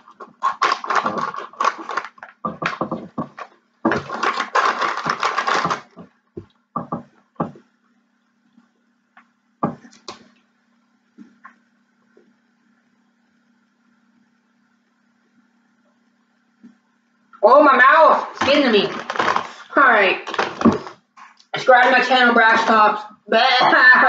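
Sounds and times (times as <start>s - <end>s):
crunching potato chip: 0.0s - 2.8s, 3.9s - 5.9s
foil bag crinkling: 0.0s - 6.0s, 18.3s - 21.0s.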